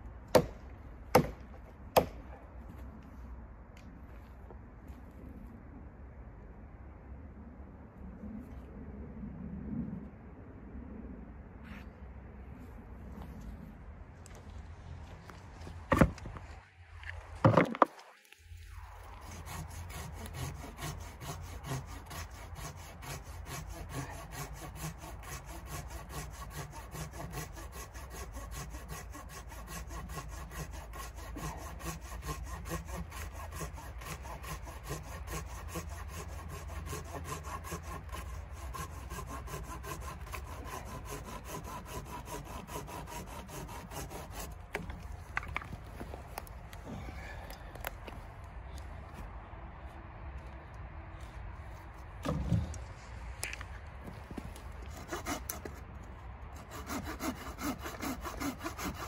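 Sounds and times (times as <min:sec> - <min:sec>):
hand saw cutting wood: 0:19.0 - 0:46.2, 0:54.1 - 0:55.9, 0:56.6 - 0:59.0.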